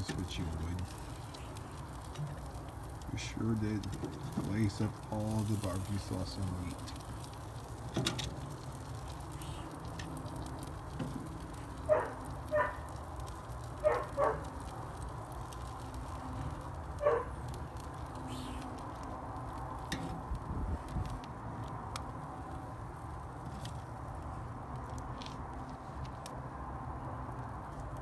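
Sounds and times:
low background rumble: 0:00.0 - 0:28.0
dog barking: 0:11.9 - 0:12.9, 0:13.8 - 0:14.4, 0:17.0 - 0:17.3.

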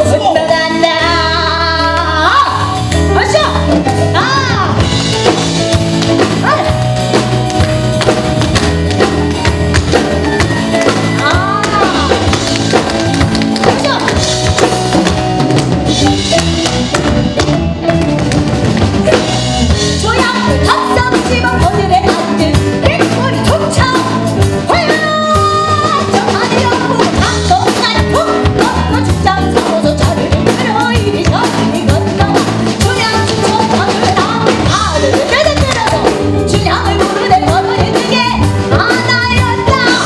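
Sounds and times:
woman singing: 0:00.0 - 0:04.9, 0:10.8 - 0:12.5, 0:19.8 - 0:40.0
live band playing a groove: 0:00.0 - 0:40.0.

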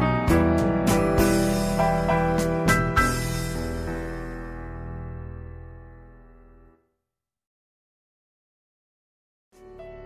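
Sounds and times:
background music with held notes: 0:00.0 - 0:06.2, 0:09.6 - 0:10.0.

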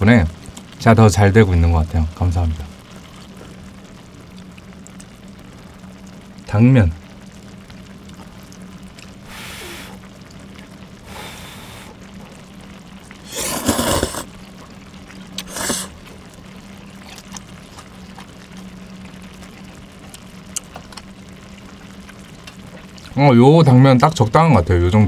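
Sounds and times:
person blowing softly: 0:09.3 - 0:10.0, 0:11.1 - 0:12.0, 0:13.3 - 0:14.3, 0:15.4 - 0:15.9
person slurping noodles: 0:13.2 - 0:14.3, 0:15.4 - 0:16.0.

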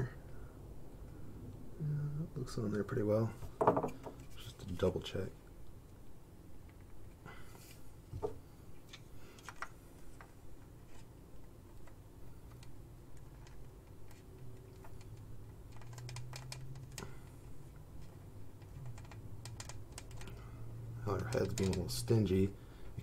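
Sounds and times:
low steady hum: 0:00.0 - 0:23.0
plastic parts clicking: 0:11.8 - 0:17.2, 0:21.2 - 0:22.0.

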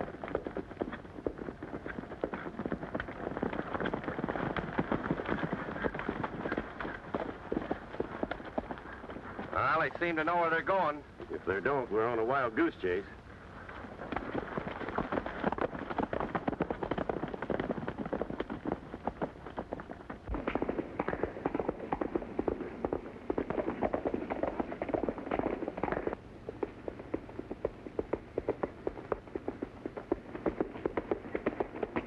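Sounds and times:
horse hooves on dirt trail: 0:00.0 - 0:32.0.

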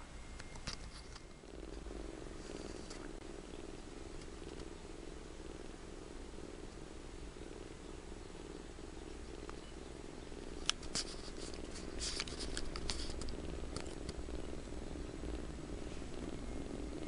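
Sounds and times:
kitten purring: 0:00.0 - 0:17.0
light clicks and rustling: 0:10.6 - 0:14.2.

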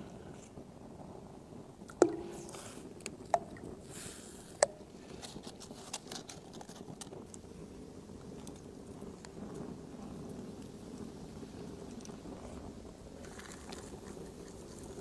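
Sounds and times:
food plopping into water: 0:01.9 - 0:03.7
light pattering: 0:08.2 - 0:15.0.

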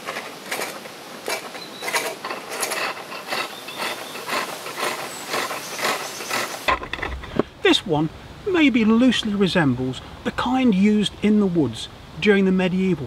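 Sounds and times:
chisel cutting wood on a lathe: 0:00.0 - 0:06.7.

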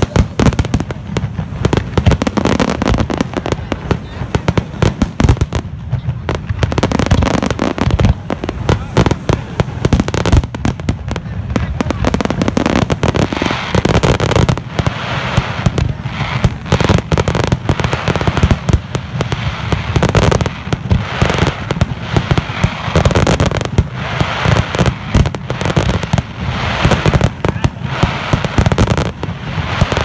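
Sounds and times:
fireworks bursting: 0:00.0 - 0:30.0
fireworks crackling: 0:00.0 - 0:30.0.

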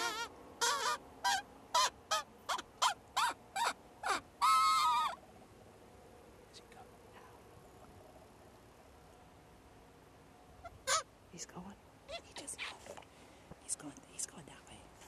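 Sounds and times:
coyote howling: 0:00.0 - 0:05.2
coyote yipping: 0:00.0 - 0:05.2, 0:10.6 - 0:11.1, 0:12.1 - 0:12.6.

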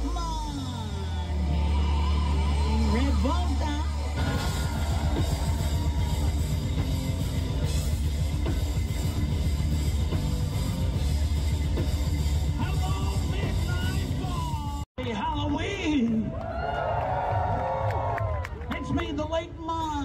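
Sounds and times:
heavy bass: 0:00.0 - 0:15.5
drum kit beat: 0:04.2 - 0:14.9.

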